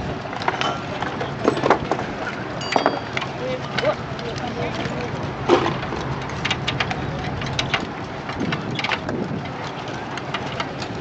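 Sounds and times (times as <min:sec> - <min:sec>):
outdoor background noise: 0:00.0 - 0:11.0
metal tools clinking: 0:00.4 - 0:01.8, 0:02.6 - 0:04.0.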